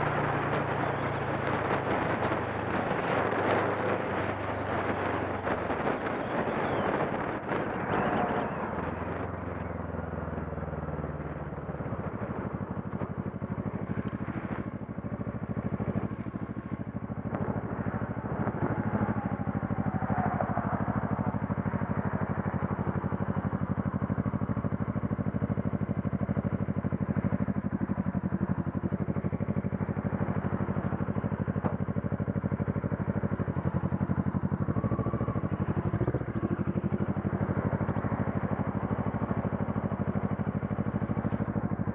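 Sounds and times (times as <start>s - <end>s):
motorcycle engine running: 0.0s - 41.9s
wind rush: 17.3s - 21.3s.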